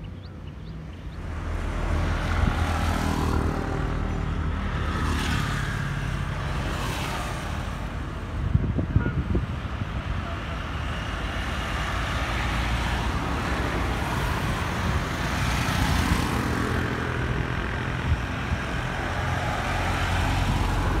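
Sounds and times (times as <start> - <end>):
cars passing: 0.0 - 21.0
motorcycles passing: 0.1 - 21.0
vehicle engine approaching: 1.1 - 6.6.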